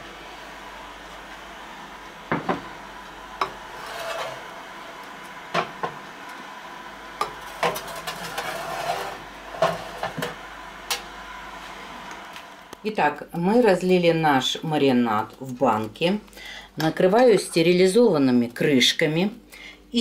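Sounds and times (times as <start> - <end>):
soft scraping: 3.6 - 4.5, 7.8 - 10.0.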